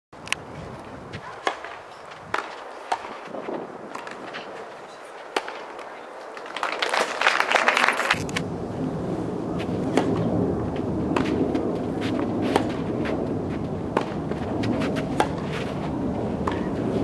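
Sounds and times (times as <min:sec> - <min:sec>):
rackets striking tennis ball: 0:01.2 - 0:06.6, 0:11.1 - 0:15.8, 0:16.4 - 0:16.8
crowd applauding: 0:06.4 - 0:08.4.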